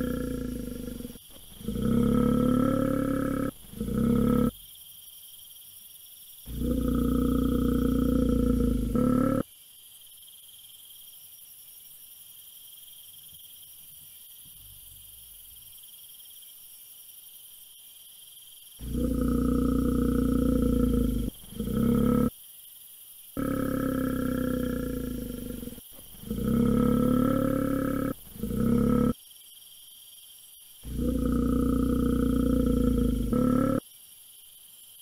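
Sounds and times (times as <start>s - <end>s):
bear roaring: 0.0s - 4.6s, 6.5s - 9.4s, 18.8s - 22.3s, 23.4s - 29.2s, 30.8s - 33.8s
faint steady hiss: 0.0s - 23.8s, 24.5s - 35.0s.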